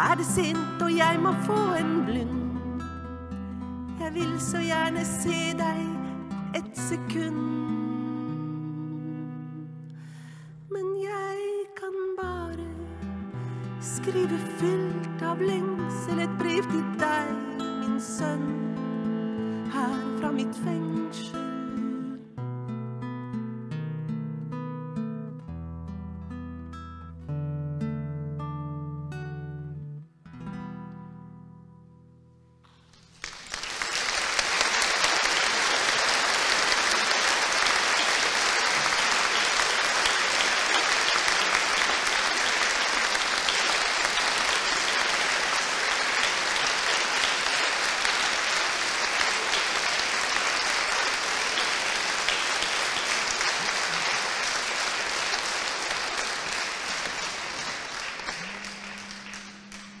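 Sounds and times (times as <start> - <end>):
audience applauding: 32.9 - 60.0.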